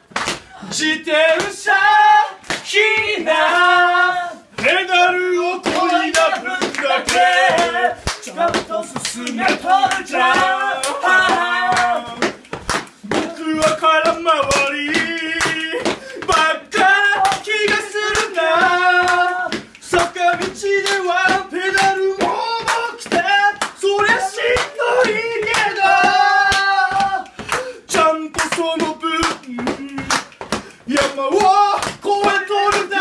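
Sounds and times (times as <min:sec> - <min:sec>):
rhythmic hand clapping: 0:00.0 - 0:33.0
men singing: 0:00.5 - 0:33.0.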